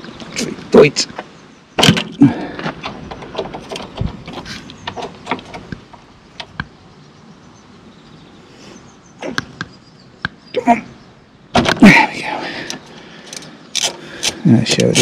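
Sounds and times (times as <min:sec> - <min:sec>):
socket ratchet clicking: 0:13.3 - 0:15.0.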